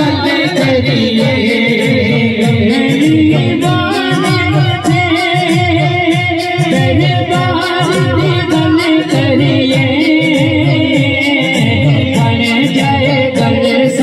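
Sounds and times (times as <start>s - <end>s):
group chanting rhythmically: 0.0s - 4.4s
lead voice singing: 0.0s - 14.0s.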